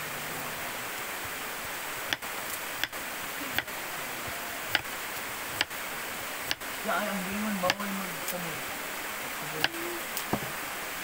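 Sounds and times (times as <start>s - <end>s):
flowing stream water: 0.0s - 11.0s.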